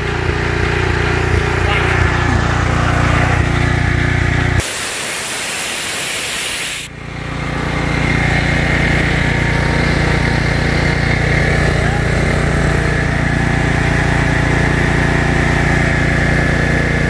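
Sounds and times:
generator engine running: 0.0s - 17.0s
motor hum: 0.0s - 17.0s
compressed air hissing: 4.6s - 6.9s.

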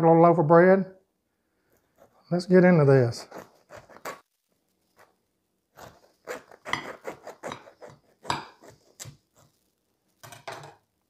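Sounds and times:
knife sawing through bread crust: 3.1s - 4.2s, 5.8s - 9.6s.

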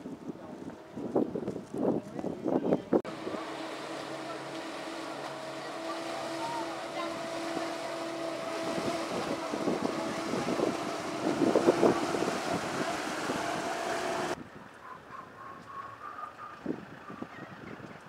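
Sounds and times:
ferry engine humming: 3.1s - 14.4s
propeller wash churning water: 3.1s - 14.4s.

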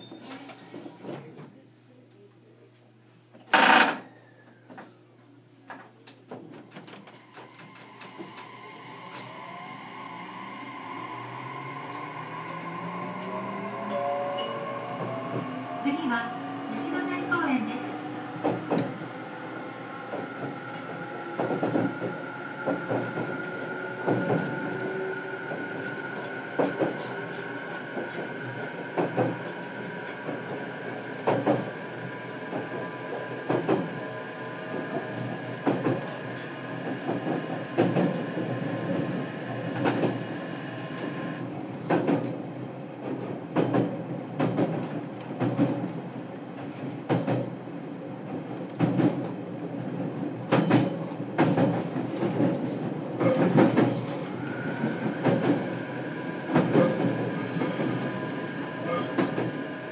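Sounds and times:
train wheels clacking over joints: 50.4s - 55.8s.

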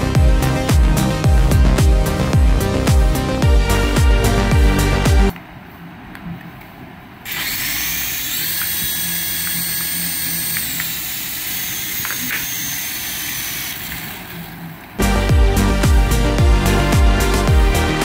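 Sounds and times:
toy helicopter motors whirring: 7.3s - 14.7s.

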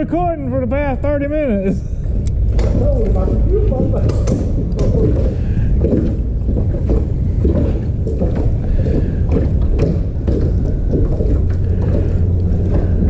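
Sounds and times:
wind buffeting microphone: 0.0s - 13.0s
water lapping against hull: 1.8s - 13.0s.

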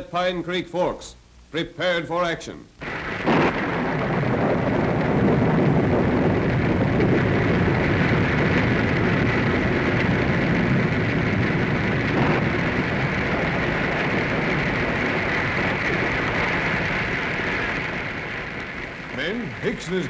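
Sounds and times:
sound-effect rain hiss: 2.8s - 20.0s.

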